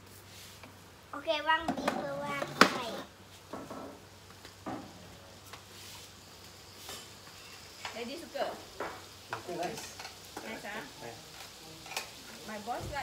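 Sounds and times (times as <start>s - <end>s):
beef sizzling on griddle: 0.0s - 13.0s
utensils tapping on pan: 8.8s - 10.6s, 11.3s - 12.4s.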